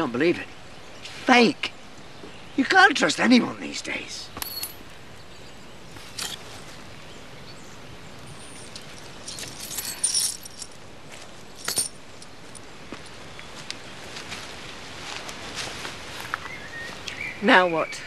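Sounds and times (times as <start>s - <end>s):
faint outdoor background: 0.0s - 18.0s
light metallic clinks: 4.4s - 5.0s, 6.0s - 6.9s, 8.1s - 13.2s
jingling cluster: 4.4s - 7.0s, 8.0s - 12.6s.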